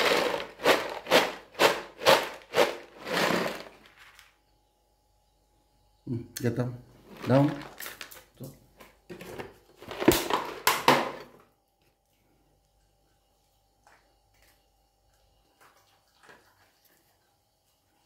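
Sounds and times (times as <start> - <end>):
dog crunching food: 0.0 - 4.2
kibble clattering on concrete: 0.0 - 4.4, 7.1 - 8.6.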